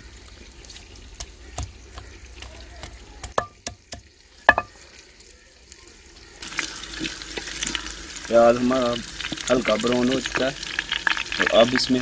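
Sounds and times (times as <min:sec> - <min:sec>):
pestle pounding in stone mortar: 0:01.2 - 0:04.7.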